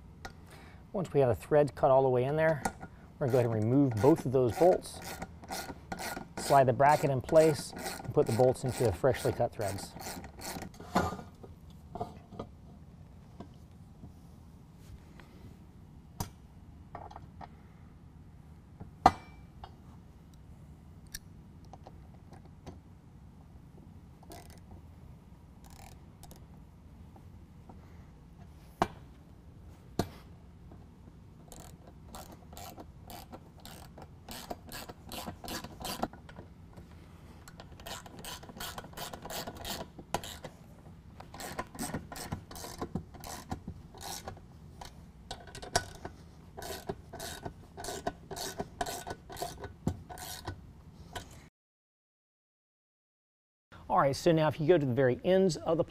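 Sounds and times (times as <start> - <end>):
ratchet wrench clicking: 3.3 - 7.1, 7.7 - 9.0, 9.7 - 10.7, 24.2 - 24.6, 25.6 - 26.4, 31.5 - 36.1, 37.5 - 40.5, 41.2 - 44.9, 46.6 - 50.5.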